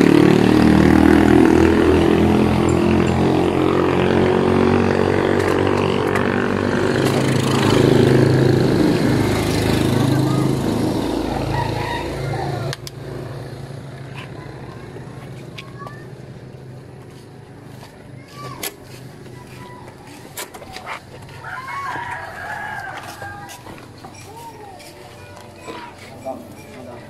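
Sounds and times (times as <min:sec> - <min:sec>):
small engine running: 0:00.0 - 0:21.9.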